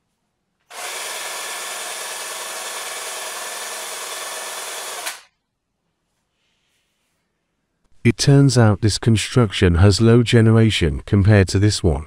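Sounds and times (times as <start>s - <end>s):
cordless drill running: 0.7s - 5.3s
drill click: 0.7s - 5.3s.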